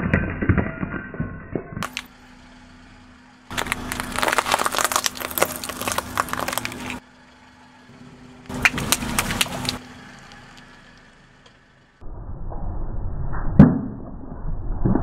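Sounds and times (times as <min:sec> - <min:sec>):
tyre crunching ceramic shards: 0:01.8 - 0:02.1, 0:03.5 - 0:07.0
water balloons crackling and snapping: 0:01.8 - 0:02.1, 0:03.5 - 0:07.0, 0:08.5 - 0:09.8.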